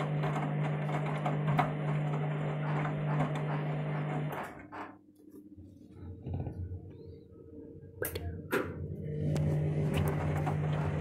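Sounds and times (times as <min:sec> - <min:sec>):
water rushing into washing machine: 0:00.0 - 0:04.9, 0:08.9 - 0:11.0.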